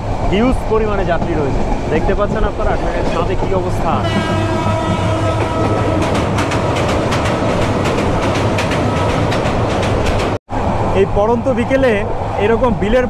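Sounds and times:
train rumbling at speed: 0.0s - 13.0s
wheels clacking over rail joints: 1.0s - 10.4s.

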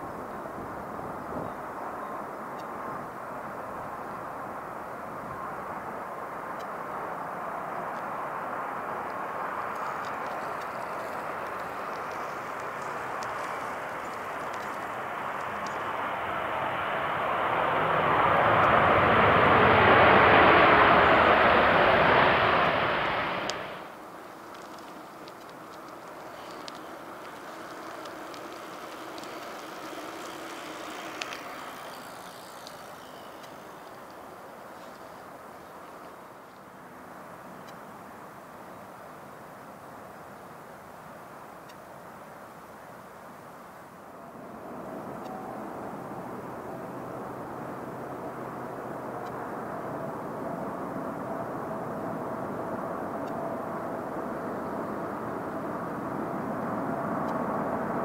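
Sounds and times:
distant jet engines roaring: 0.0s - 58.0s
faint ticks: 6.5s - 6.8s, 7.8s - 8.1s, 9.0s - 16.0s, 23.4s - 36.7s, 37.5s - 37.9s, 41.5s - 41.9s, 44.8s - 45.4s, 48.8s - 50.0s, 53.1s - 53.6s, 54.4s - 57.7s
jet engine rushing: 8.4s - 34.6s.

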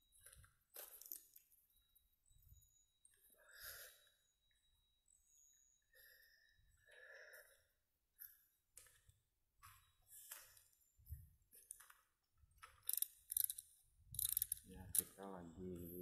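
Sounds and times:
faint breathing: 3.1s - 4.4s, 5.1s - 8.6s
faint footsteps on path: 8.2s - 12.9s.

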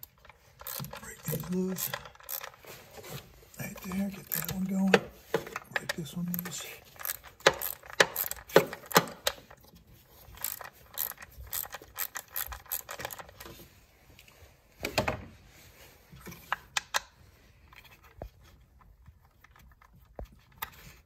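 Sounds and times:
ratchet clicking: 0.6s - 2.6s, 6.9s - 9.4s, 10.3s - 13.2s.

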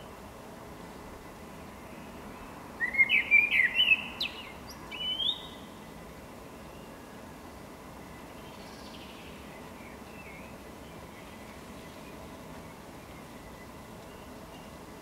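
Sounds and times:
blackbird singing: 2.8s - 5.8s.

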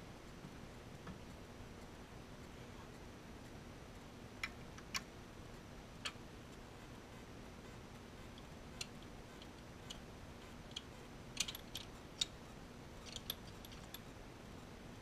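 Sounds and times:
small tools clicking and tapping: 10.7s - 12.4s, 13.0s - 14.1s.

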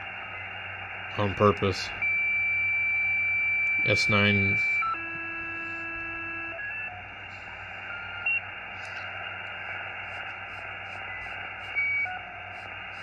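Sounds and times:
whistling radio tones: 0.0s - 13.0s
radio receiver hiss: 3.6s - 13.0s.

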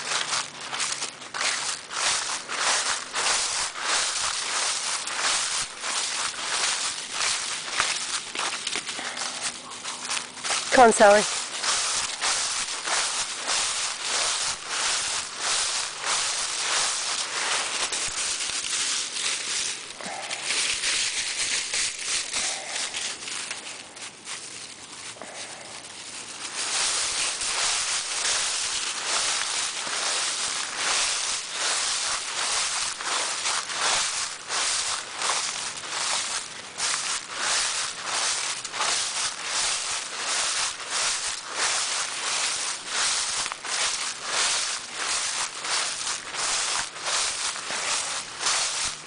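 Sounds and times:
footsteps crunching dry leaves: 0.0s - 49.0s.

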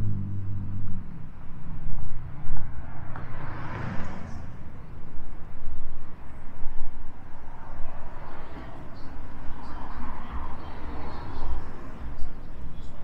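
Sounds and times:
low rumble of traffic: 0.0s - 13.0s
car passing by: 2.1s - 5.3s, 7.2s - 12.5s.

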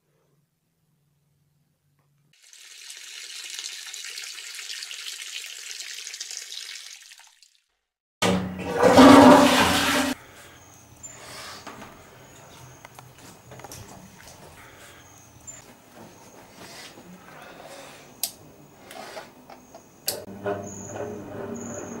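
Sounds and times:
urine stream splashing into toilet: 2.4s - 7.7s
toilet flush rushing: 8.3s - 10.2s, 20.3s - 22.0s.

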